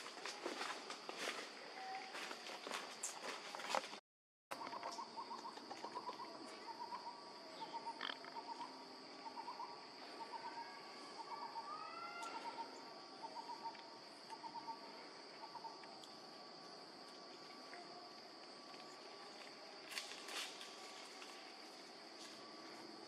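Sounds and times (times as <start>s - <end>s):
insect drone: 0.0s - 23.0s.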